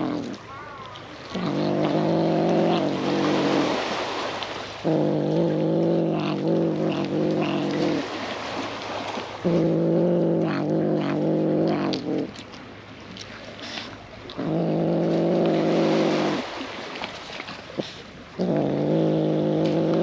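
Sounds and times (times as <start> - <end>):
chewing clicks: 0.0 - 3.2, 4.9 - 8.0, 9.1 - 15.6, 17.0 - 20.0
cat growling low: 0.0 - 4.0, 4.8 - 8.2, 9.4 - 12.4, 14.3 - 16.5, 17.6 - 20.0.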